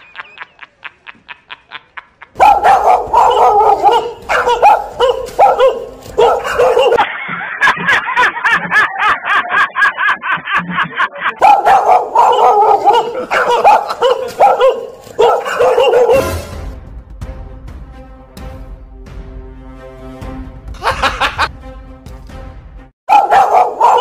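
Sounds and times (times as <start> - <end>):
recorded dog barking through speaker: 2.4 - 7.0, 11.4 - 16.3, 23.1 - 24.0
music: 15.8 - 23.0.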